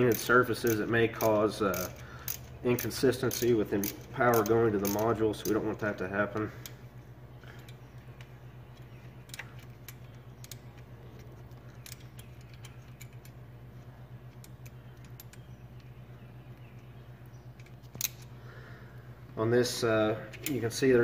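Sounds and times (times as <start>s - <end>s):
ratchet clicking on bolt: 0.0s - 5.6s
steady low hum: 0.0s - 21.0s.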